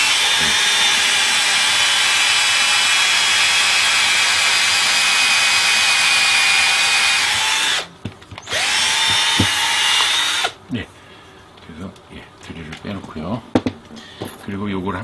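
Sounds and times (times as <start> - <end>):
electric drill boring into wood: 0.0 - 10.6.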